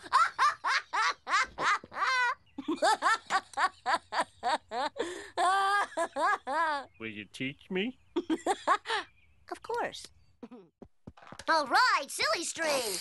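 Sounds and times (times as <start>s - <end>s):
cartoon boy laughing hard: 0.0s - 6.9s.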